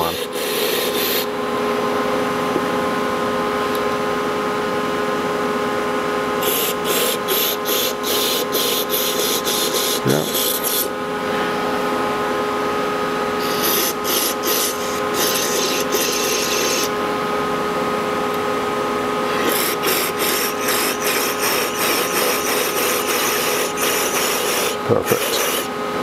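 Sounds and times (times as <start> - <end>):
steady hum: 0.0 - 26.0
aerosol spray hissing: 0.1 - 1.3, 6.4 - 10.9, 13.4 - 16.9, 19.4 - 25.7.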